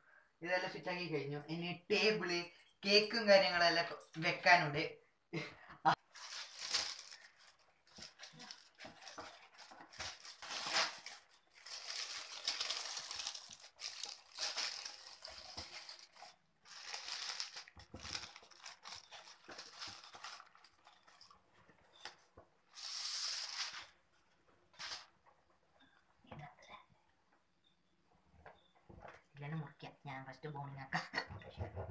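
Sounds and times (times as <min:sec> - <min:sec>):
plastic bag rustling: 0:06.0 - 0:24.0, 0:24.7 - 0:25.1.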